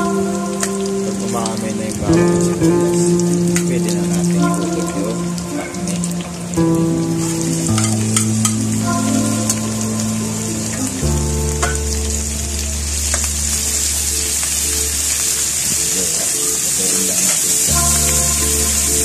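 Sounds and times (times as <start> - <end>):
background music low notes: 0.0 - 19.0
meat and onions sizzling: 0.0 - 19.0.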